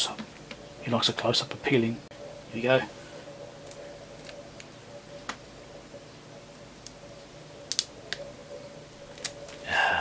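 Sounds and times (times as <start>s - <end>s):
plastic film peeling crackles: 7.7s - 8.3s, 9.1s - 9.6s.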